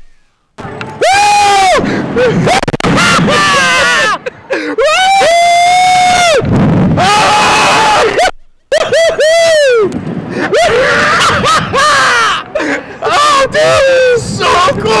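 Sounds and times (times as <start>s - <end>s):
men screaming: 1.0s - 15.0s
men laughing: 1.8s - 5.6s, 7.9s - 13.6s.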